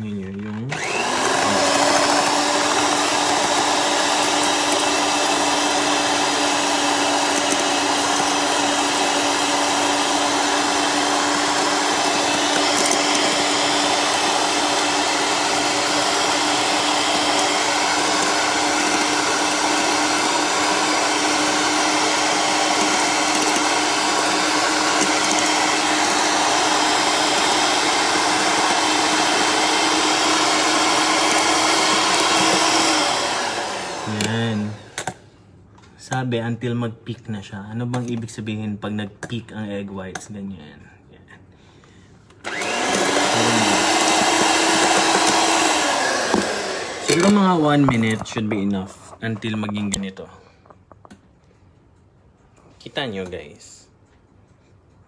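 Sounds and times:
electric hand mixer whining: 0:00.6 - 0:35.2, 0:42.4 - 0:48.6.

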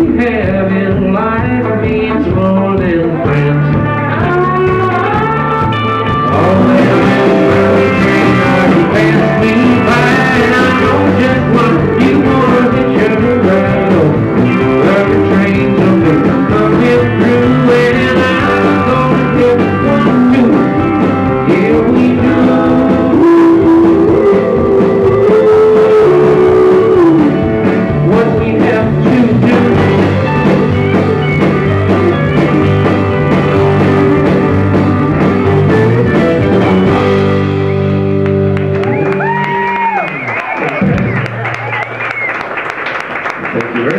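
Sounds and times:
acoustic guitar: 0:00.0 - 0:41.9
bass guitar: 0:00.0 - 0:43.9
drums: 0:00.0 - 0:43.9
electric guitar: 0:00.0 - 0:43.9
pedal steel guitar: 0:03.2 - 0:40.0.

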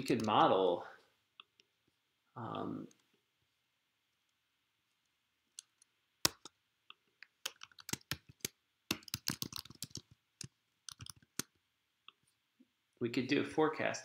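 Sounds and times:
computer keyboard typing: 0:05.6 - 0:06.6, 0:07.2 - 0:11.6.

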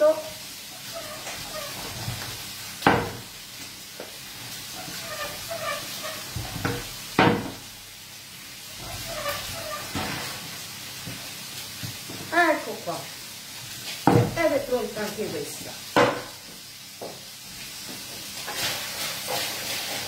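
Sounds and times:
rolling pin rubbing dough: 0:04.7 - 0:06.9, 0:08.8 - 0:10.0.

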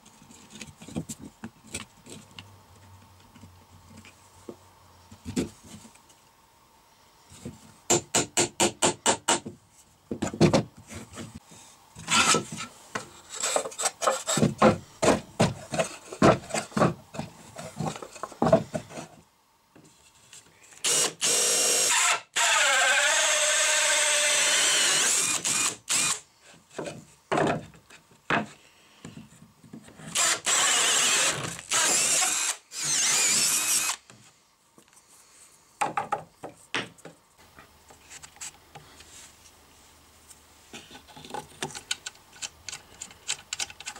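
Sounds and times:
drill with hole saw cutting board: 0:12.0 - 0:12.4, 0:20.8 - 0:26.2, 0:30.1 - 0:34.1.

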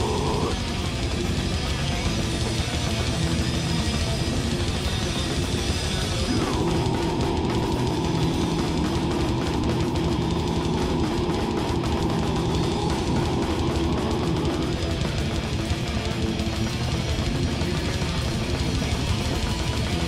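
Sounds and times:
distorted electric guitars: 0:00.0 - 0:20.0
fast drumming: 0:00.0 - 0:20.0.

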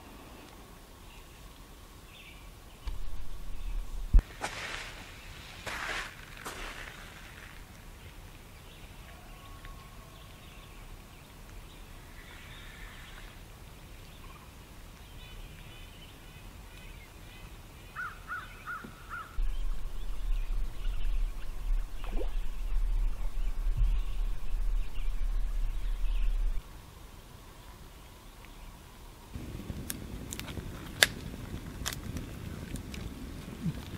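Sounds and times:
faint birdsong: 0:00.0 - 0:29.7
crow-like bird calls: 0:18.0 - 0:22.5
loud low rumble: 0:19.4 - 0:26.6.

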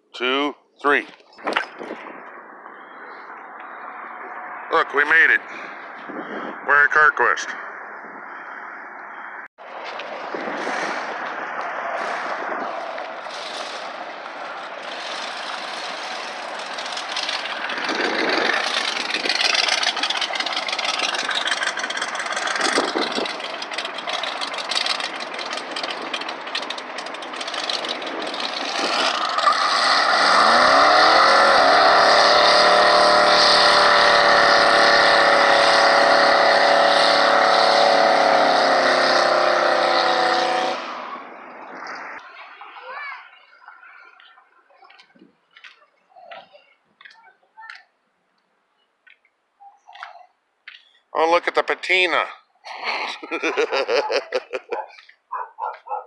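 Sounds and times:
truck engine revving: 0:10.5 - 0:41.2, 0:53.1 - 0:55.1
tyres spinning: 0:13.2 - 0:35.0.

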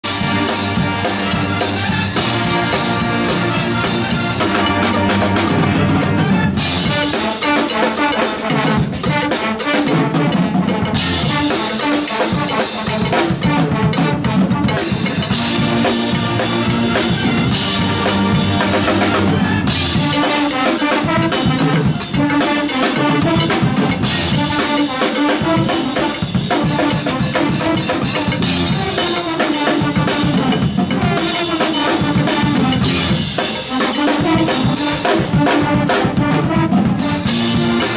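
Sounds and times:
pep band playing: 0:00.0 - 0:37.9.

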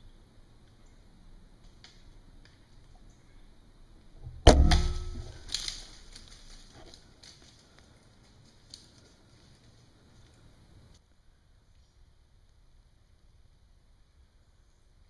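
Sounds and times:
bow string release crack: 0:04.5 - 0:07.0.

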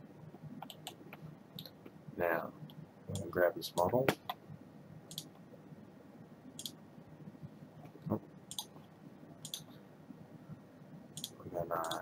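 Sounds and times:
computer mouse clicking: 0:00.6 - 0:01.9, 0:05.1 - 0:05.4, 0:06.6 - 0:06.8, 0:07.8 - 0:08.8, 0:09.4 - 0:09.8, 0:11.2 - 0:12.0.

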